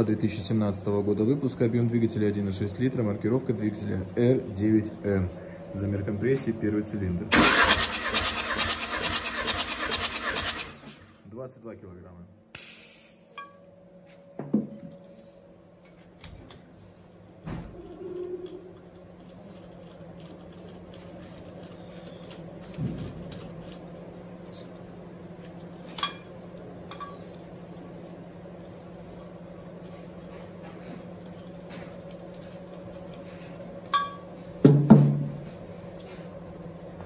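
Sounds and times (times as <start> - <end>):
faint steady hum: 0.0 - 7.4, 11.0 - 37.0
metal tools clicking and knocking: 17.8 - 23.8.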